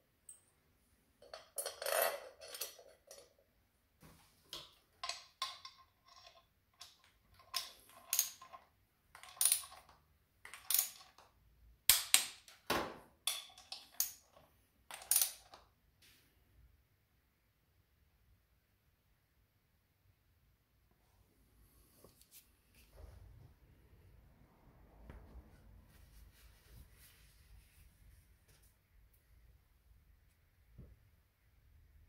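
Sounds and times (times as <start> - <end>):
metal bolt and tools clinking: 1.2 - 3.4, 4.5 - 11.2, 13.2 - 15.6.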